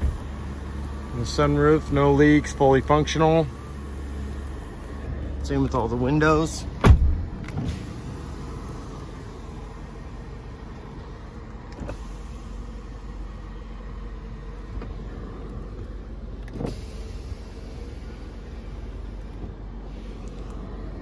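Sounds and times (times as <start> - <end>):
power window motors running: 0.0 - 21.0
loud thump: 6.8 - 7.8.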